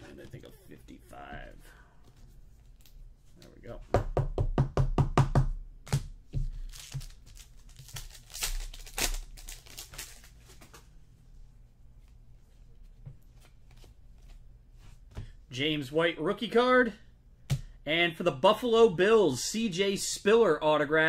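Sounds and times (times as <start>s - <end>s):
card and wrapper rustling: 6.4s - 10.9s.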